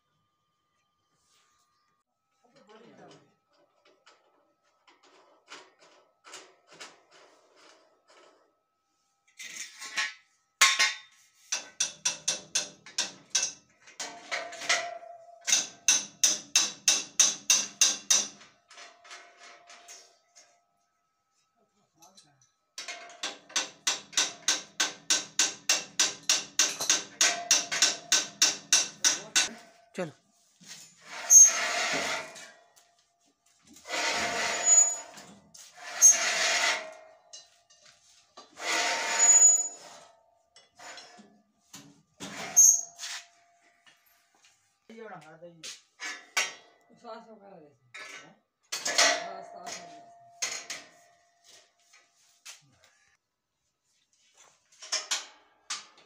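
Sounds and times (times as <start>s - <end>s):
hammer striking steel: 15.4s - 18.4s, 23.3s - 29.7s
metal grating on metal: 23.6s - 32.9s, 33.7s - 40.2s, 42.2s - 43.7s
brief scrape: 42.3s - 43.3s.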